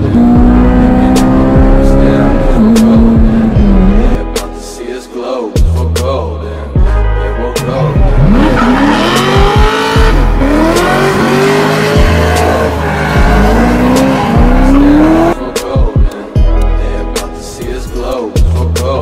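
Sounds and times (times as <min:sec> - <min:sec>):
car engine revving: 0:00.0 - 0:04.2, 0:07.6 - 0:15.5
music with bass beat: 0:00.0 - 0:19.0.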